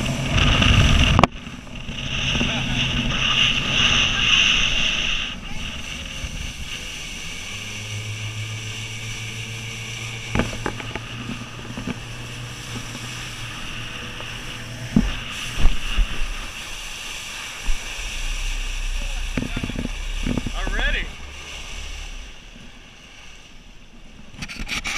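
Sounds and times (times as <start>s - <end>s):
wind buffeting microphone: 0.0s - 24.4s
motorboat engine running: 0.0s - 24.9s.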